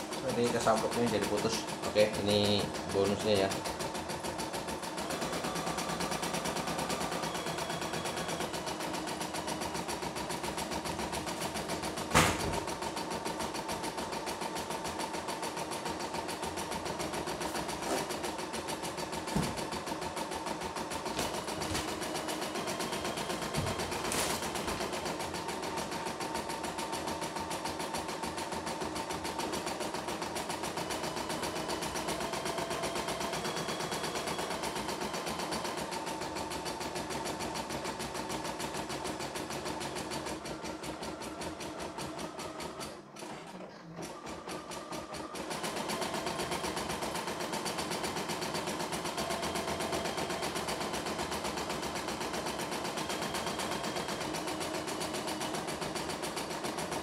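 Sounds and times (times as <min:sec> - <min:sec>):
embroidery machine stitching: 0:00.0 - 0:57.0.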